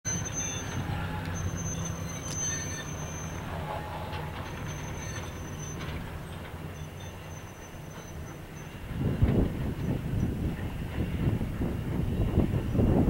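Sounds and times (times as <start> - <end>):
thin high squeal: 0.1 - 8.9
steam locomotive rumble: 0.1 - 13.0.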